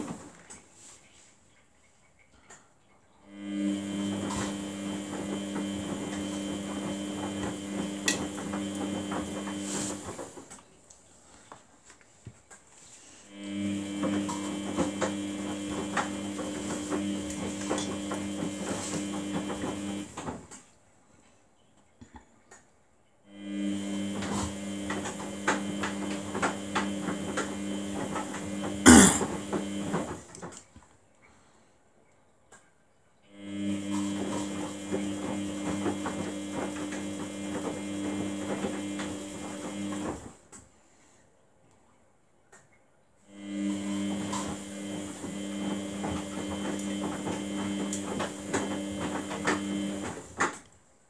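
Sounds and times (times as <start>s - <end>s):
washing machine motor humming: 3.2s - 10.7s, 13.1s - 20.5s, 23.3s - 30.6s, 33.3s - 40.5s, 43.3s - 50.7s.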